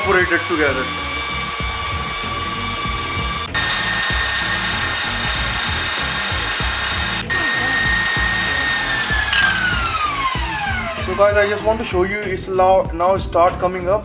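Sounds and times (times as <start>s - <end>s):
wire whisk beating eggs: 0.0s - 11.3s
stand mixer motor whining: 0.0s - 11.9s.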